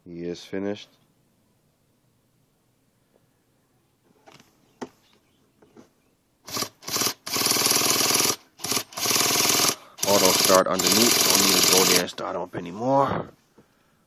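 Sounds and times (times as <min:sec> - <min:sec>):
electric starter buzzing whir: 0:06.4 - 0:12.1.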